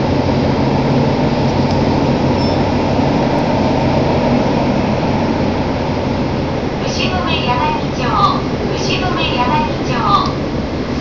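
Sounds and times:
subway train rumbling in tunnel: 0.0s - 11.0s.

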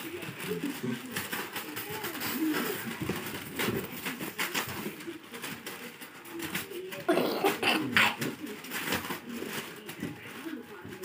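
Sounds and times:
paws scuffling on concrete: 0.0s - 11.0s
puppies growling: 6.9s - 9.2s.

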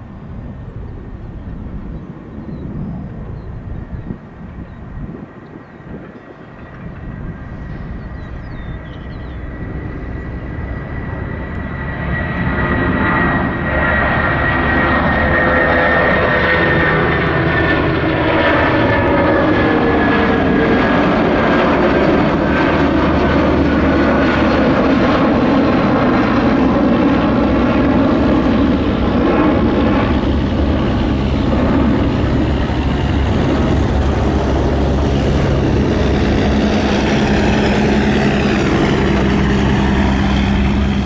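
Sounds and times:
airliner engines running: 0.0s - 41.0s.

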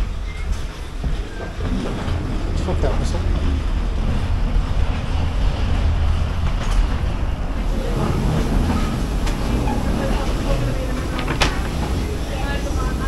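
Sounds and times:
low machinery rumble: 0.0s - 13.0s.

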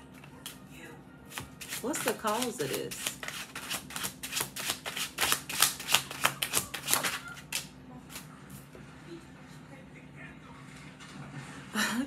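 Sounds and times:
cards being shuffled by hand: 1.3s - 8.3s.

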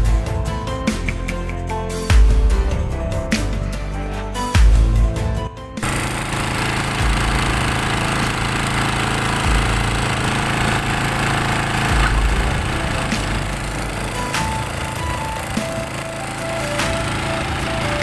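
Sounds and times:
small engine running: 5.8s - 18.0s.

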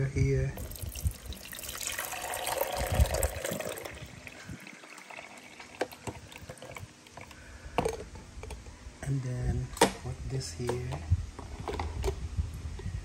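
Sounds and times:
water pouring into tank: 0.6s - 7.2s.

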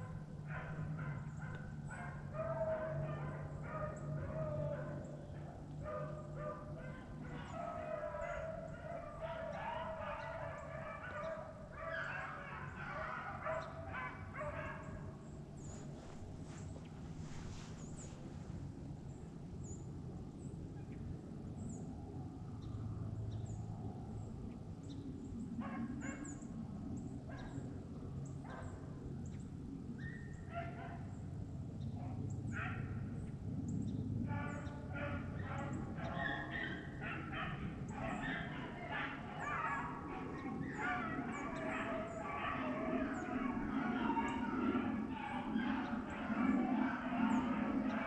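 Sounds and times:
dogs baying: 0.0s - 18.0s, 30.1s - 31.1s, 32.0s - 33.1s, 34.2s - 48.0s.

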